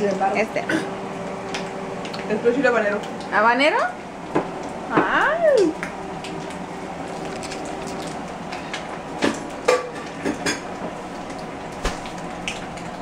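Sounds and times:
steady machine hum: 0.0 - 13.0.

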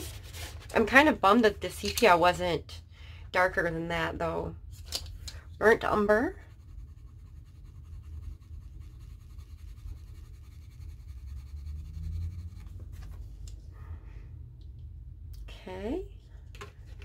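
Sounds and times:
steady low hum: 0.0 - 17.0
colored pencil scratching on paper: 6.0 - 13.3.

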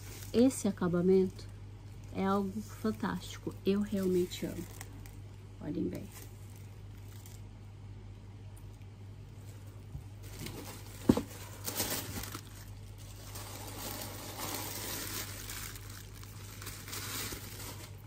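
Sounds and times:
tissue paper rustling: 0.0 - 0.9, 2.0 - 5.1, 9.4 - 18.0.

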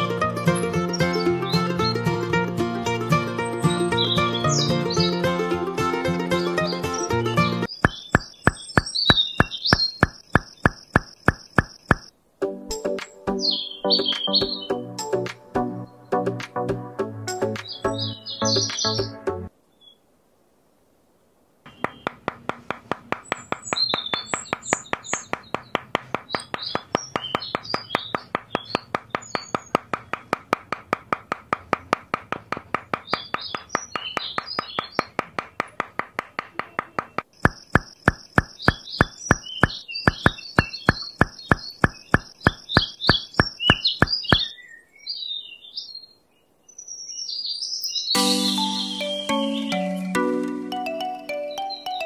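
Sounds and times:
birds chirping: 0.5 - 2.2, 3.4 - 5.3, 6.3 - 12.1, 13.3 - 14.8, 17.4 - 20.0, 21.7 - 52.0
rapid clicking beat: 7.8 - 12.1, 21.8 - 44.4.

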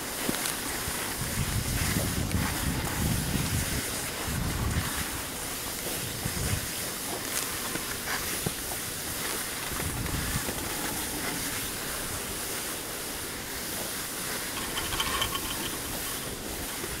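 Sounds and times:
skis hissing over snow: 0.0 - 17.0
fine rattling clicks: 14.5 - 16.5.

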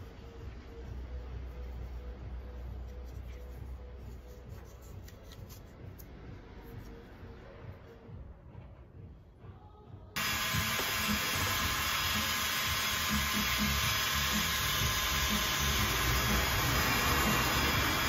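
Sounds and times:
rotary tool motor whirring: 10.2 - 18.0.

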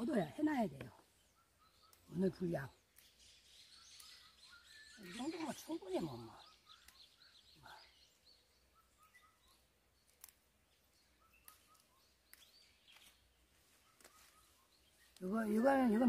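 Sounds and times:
faint birds chirping: 0.0 - 16.0
soft clicks: 6.8 - 7.2, 10.0 - 10.5, 11.4 - 13.2.

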